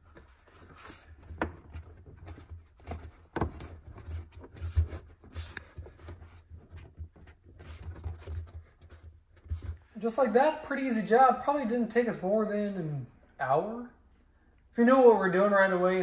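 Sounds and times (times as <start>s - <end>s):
rubber grommet rubbing: 0.0s - 10.0s.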